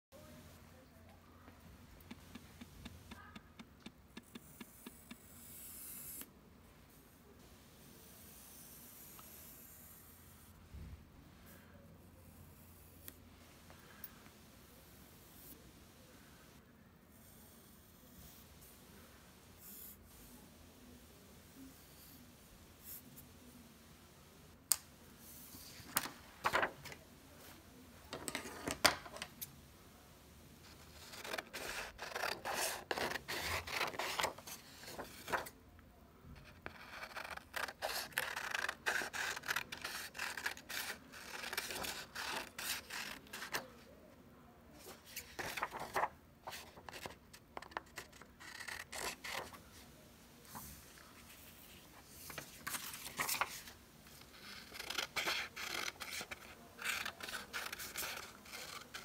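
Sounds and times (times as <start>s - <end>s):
scissors snipping paper: 31.0s - 34.4s, 36.7s - 43.6s.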